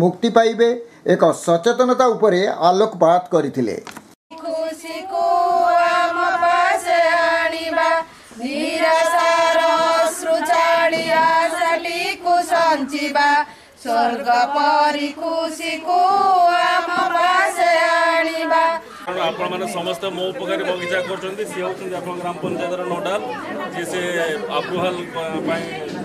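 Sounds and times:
women singing in unison: 0:04.3 - 0:19.1.

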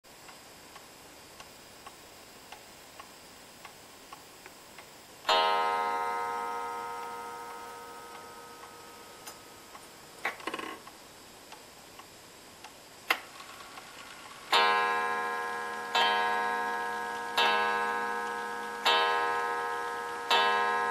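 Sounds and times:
clock ticking: 0:04.8 - 0:09.9, 0:14.5 - 0:20.9
clock gong ringing: 0:05.3 - 0:09.7, 0:14.5 - 0:20.9.

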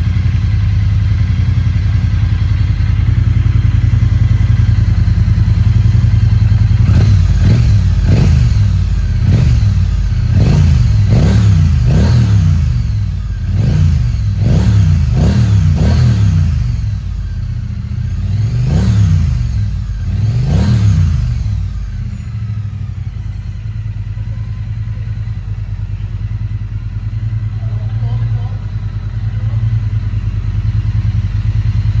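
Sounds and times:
motorcycle engine revving and idling: 0:00.0 - 0:32.0.

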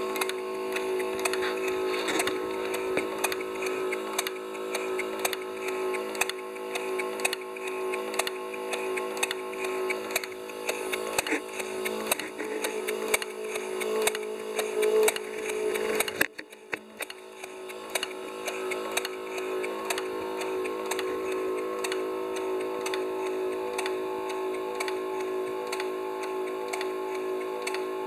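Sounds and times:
constant hum: 0:00.0 - 0:28.0
geared engine clicking: 0:00.0 - 0:28.0.

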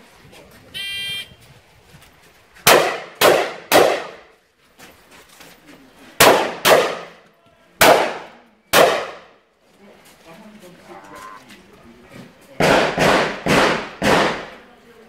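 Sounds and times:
shotgun shots: 0:02.7 - 0:04.3, 0:06.2 - 0:07.2, 0:07.8 - 0:09.3, 0:12.6 - 0:14.6.

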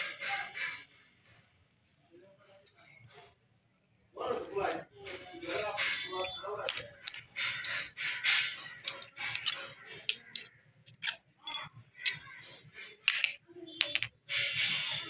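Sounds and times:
metal parts clinking and scraping: 0:05.4 - 0:15.0.

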